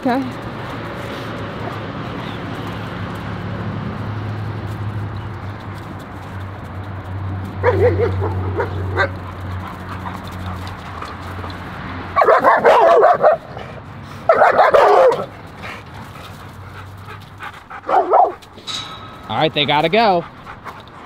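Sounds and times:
dogs barking: 0:07.5 - 0:18.5.

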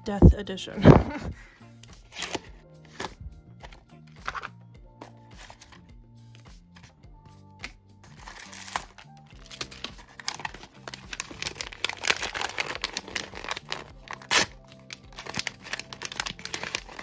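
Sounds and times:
background music: 0:00.0 - 0:17.0
packaging crinkling and tearing: 0:02.1 - 0:03.2, 0:08.1 - 0:17.0.

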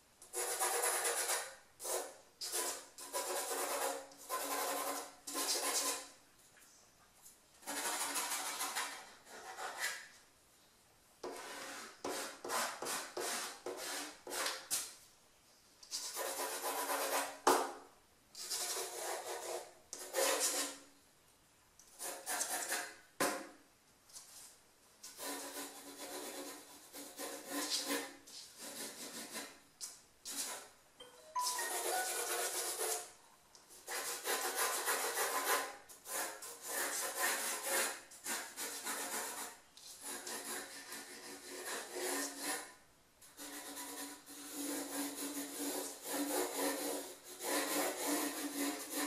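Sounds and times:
pencil sketching on paper: 0:16.0 - 0:17.3, 0:25.2 - 0:29.6, 0:31.4 - 0:33.1, 0:33.8 - 0:42.7, 0:43.4 - 0:49.0.

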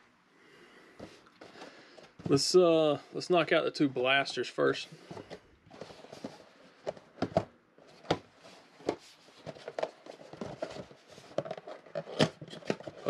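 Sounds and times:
cardboard boxes knocking and tapping: 0:05.0 - 0:13.0.

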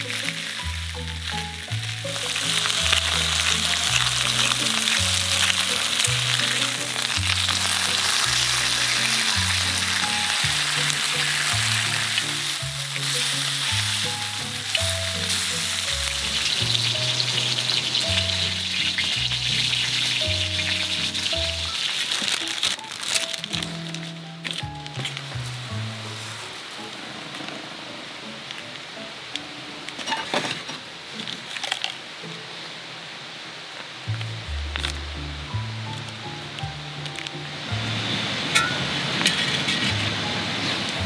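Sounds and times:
pork sizzling on griddle: 0:00.0 - 0:26.9, 0:34.1 - 0:41.0.

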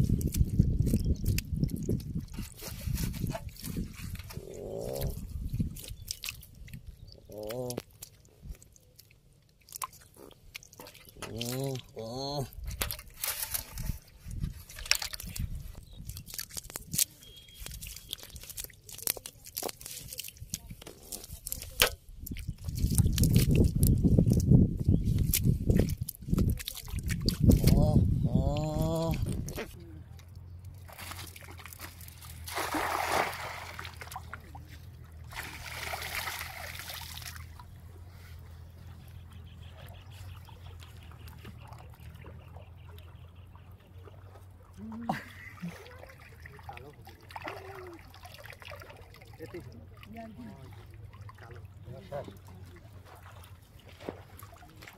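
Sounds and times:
water sloshing: 0:00.0 - 0:24.5, 0:25.1 - 0:28.0, 0:28.7 - 0:54.9
wet net crackling and clicking: 0:05.8 - 0:11.5, 0:14.6 - 0:27.8
net splashing into water: 0:30.8 - 0:34.6, 0:35.2 - 0:37.7, 0:45.4 - 0:50.1.

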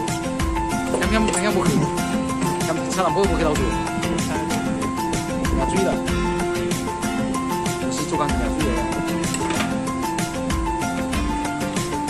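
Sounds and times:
steady beat: 0:01.0 - 0:09.2.

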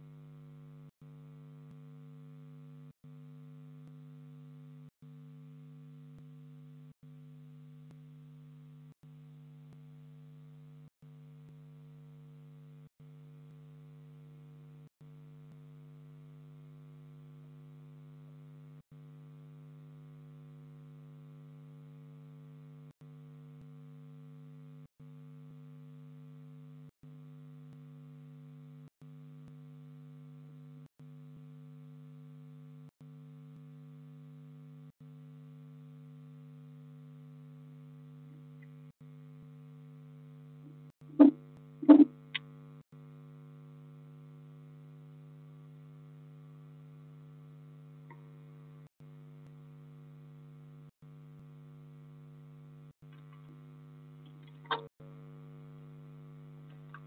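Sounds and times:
electrical hum: 0:40.7 - 0:42.4.

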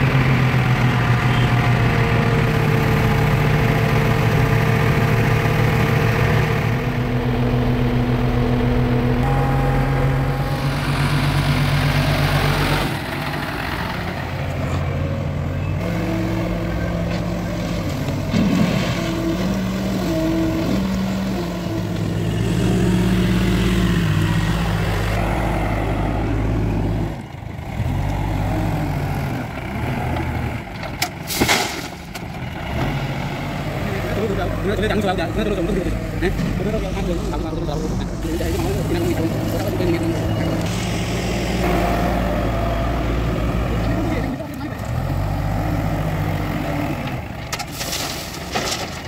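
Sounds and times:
diesel engine running: 0:00.0 - 0:49.0
stones clattering into truck bed: 0:30.8 - 0:32.3, 0:47.5 - 0:49.0.

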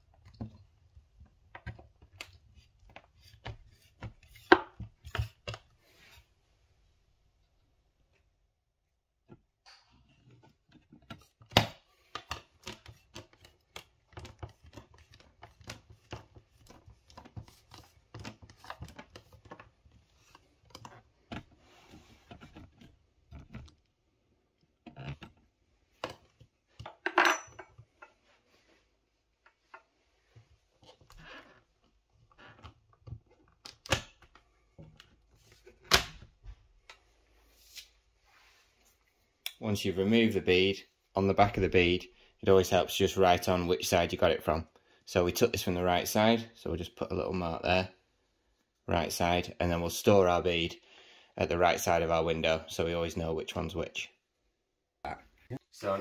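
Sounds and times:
putty knife scraping plastic: 0:01.5 - 0:06.3, 0:10.0 - 0:23.9.

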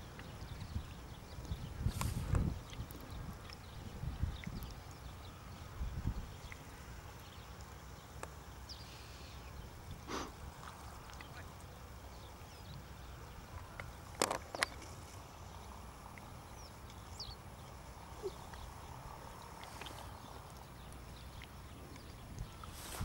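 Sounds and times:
faint bird chirps: 0:15.5 - 0:23.0.

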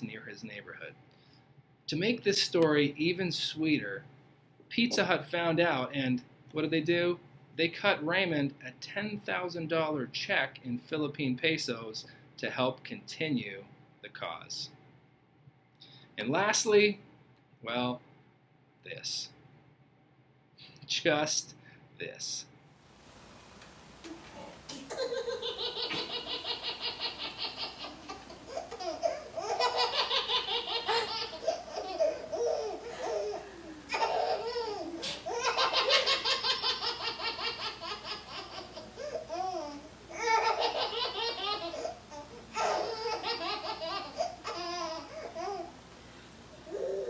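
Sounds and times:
baby laughing: 0:24.7 - 0:45.7.

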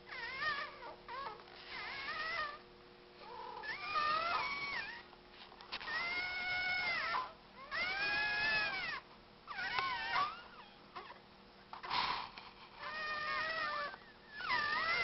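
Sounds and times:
cat yowling meows: 0:05.9 - 0:09.0, 0:12.9 - 0:15.0.

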